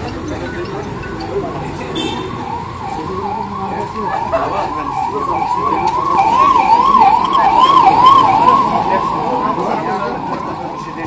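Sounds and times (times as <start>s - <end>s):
electronic siren warbling: 2.3s - 11.0s.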